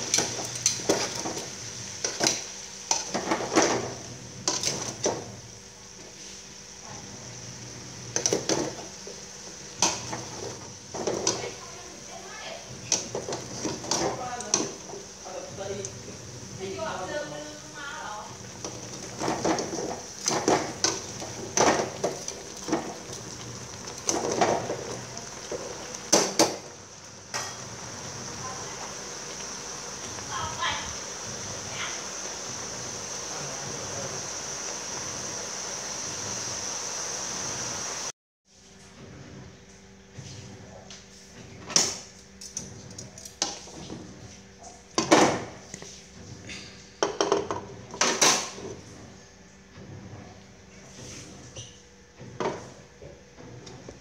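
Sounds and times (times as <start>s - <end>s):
utensils clanking on pot and plate: 0.0s - 5.2s
chicken sizzling in oil: 0.0s - 38.1s.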